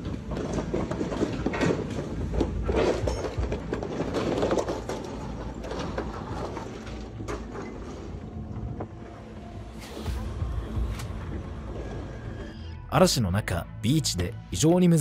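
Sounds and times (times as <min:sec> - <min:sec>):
knocks and cracks: 0:00.0 - 0:08.0.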